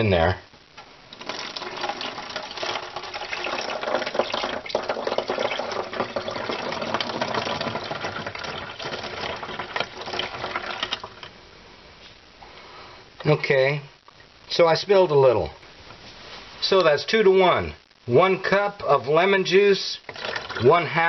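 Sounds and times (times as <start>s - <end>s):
liquid pouring into plastic bottle: 1.1s - 11.3s, 20.1s - 20.6s.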